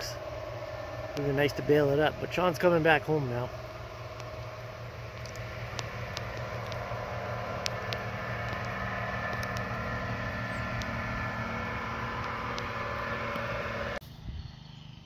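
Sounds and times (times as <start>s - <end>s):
low engine-like hum: 0.0s - 15.0s
light rain falling: 3.6s - 14.0s
sharp drip ticks: 3.8s - 13.6s.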